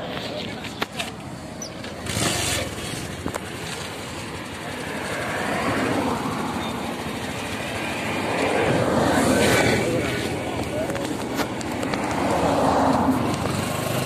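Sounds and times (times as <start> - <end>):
road noise: 0.0 - 14.0
motorcycle engine running: 0.1 - 14.0.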